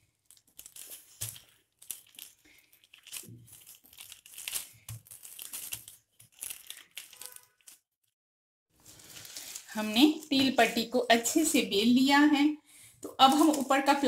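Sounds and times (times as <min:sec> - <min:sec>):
plastic sheet crinkling: 0:00.0 - 0:08.0, 0:08.8 - 0:11.0, 0:13.2 - 0:14.0.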